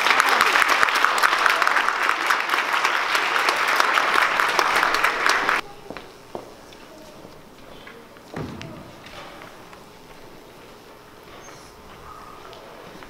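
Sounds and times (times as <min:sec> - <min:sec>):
audience applauding: 0:00.0 - 0:05.6
bare feet landing on wooden stage: 0:08.3 - 0:09.6.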